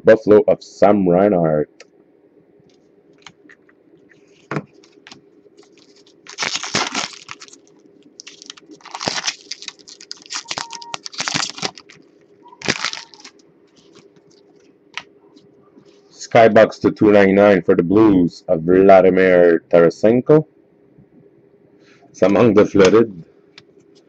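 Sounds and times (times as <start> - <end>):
foil wrapper crinkling: 4.7 - 15.1.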